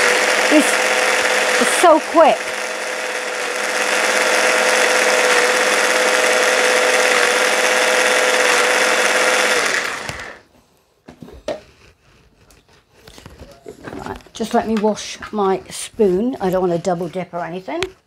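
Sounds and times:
hand blender motor whining: 0.0 - 10.5.

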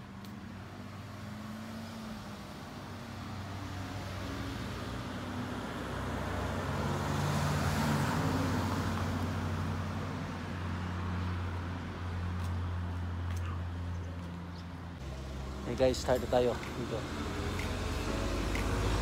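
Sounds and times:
car passing: 0.6 - 19.0
steady low traffic hum: 9.2 - 19.0.

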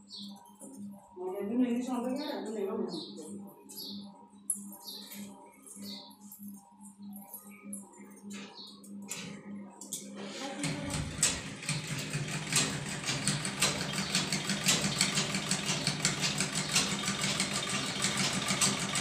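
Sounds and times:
small motor humming: 10.3 - 19.0.

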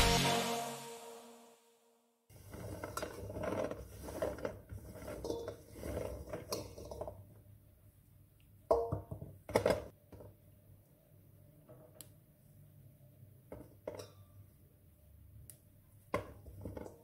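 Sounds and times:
olives rattling in a steel bowl: 2.4 - 7.3.

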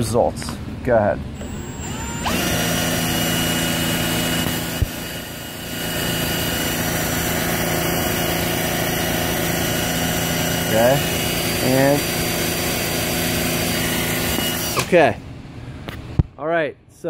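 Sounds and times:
electric drill whining: 1.4 - 14.9.

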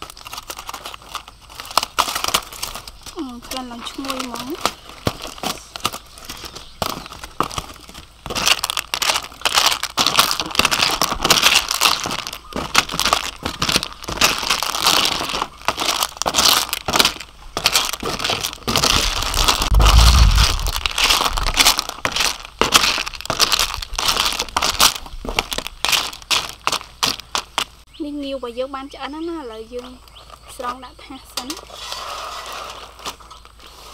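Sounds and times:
aluminium foil crinkling: 0.0 - 27.9, 30.1 - 33.8
low rumble: 19.2 - 21.6.

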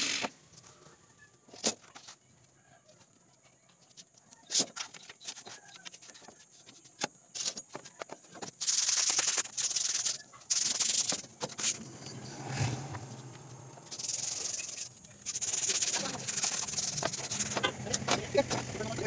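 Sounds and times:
sandpaper sanding wood: 8.5 - 11.8, 13.8 - 18.7.

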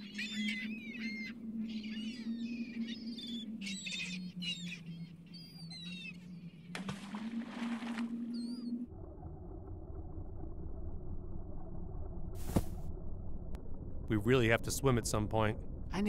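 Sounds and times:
low steady hum: 0.0 - 16.0
object splashing into water: 6.7 - 8.2, 12.4 - 12.8.

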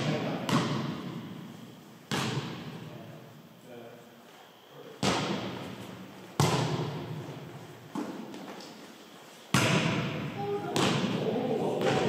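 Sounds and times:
volleyball being hit: 0.0 - 1.3, 2.1 - 2.8, 5.0 - 5.8, 6.4 - 7.2, 9.5 - 12.0.

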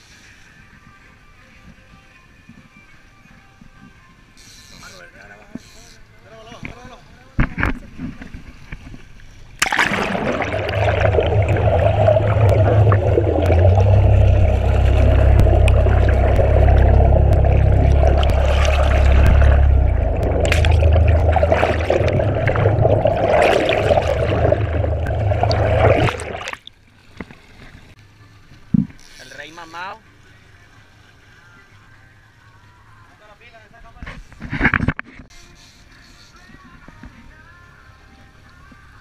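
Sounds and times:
underwater rushing and bubbling: 9.4 - 28.0
heavy low rumble: 9.6 - 26.5.

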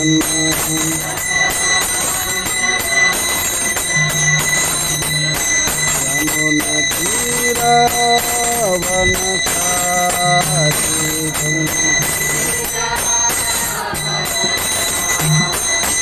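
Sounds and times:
man singing devotional song: 0.0 - 15.5
bell-like ringing: 0.0 - 16.0.

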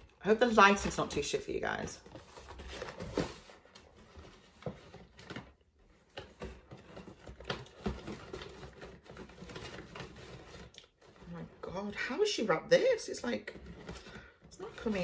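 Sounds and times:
packaging rustling and crinkling: 2.0 - 11.5.

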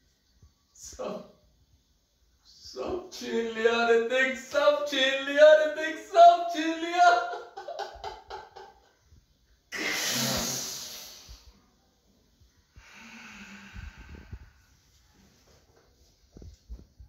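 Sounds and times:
man breathing hard: 12.7 - 14.8.

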